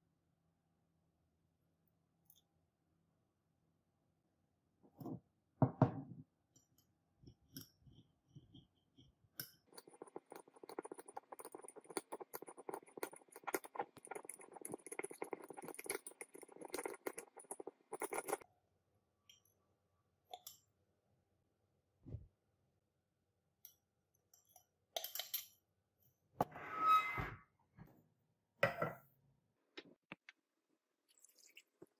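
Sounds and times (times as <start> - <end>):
metal spatula scraping glass beaker: 9.4 - 18.4, 26.4 - 27.4.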